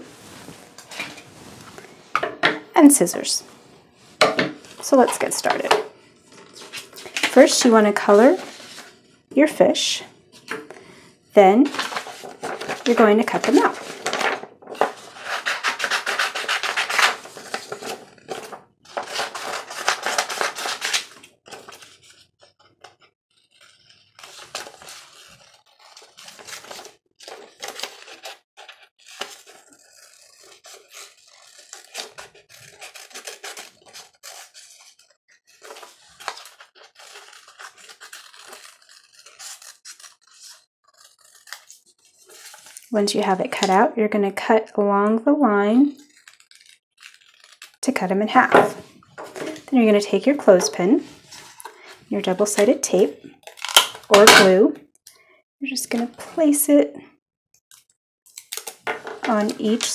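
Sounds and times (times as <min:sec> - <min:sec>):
paper rustling: 0:00.0 - 0:02.0, 0:04.6 - 0:09.1, 0:10.4 - 0:42.9, 0:46.0 - 0:47.8, 0:48.4 - 0:49.7, 0:50.5 - 0:54.5, 0:58.3 - 0:59.9
scissors cutting paper: 0:11.7 - 0:42.5, 0:46.0 - 0:47.8, 0:57.7 - 0:59.9.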